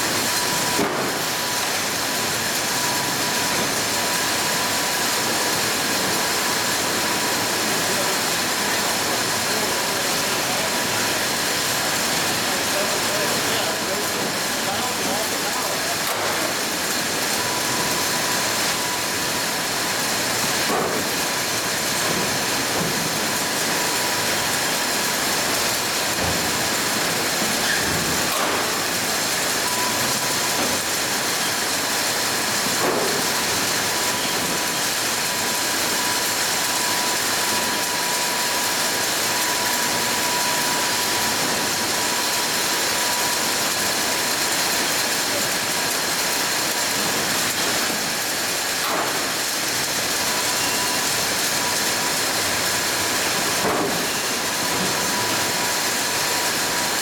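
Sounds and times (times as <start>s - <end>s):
machinery noise: 0.0s - 57.0s.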